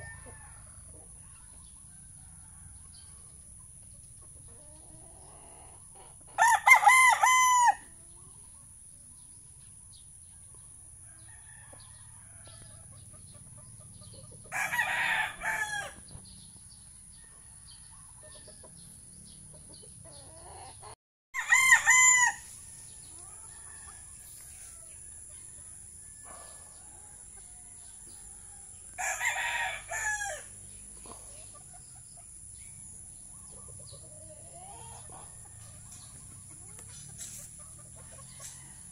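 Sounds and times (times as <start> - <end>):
roosters crowing: 0.0 - 1.2, 4.6 - 8.2, 10.9 - 13.0, 14.4 - 16.2, 20.1 - 33.0, 34.0 - 38.9.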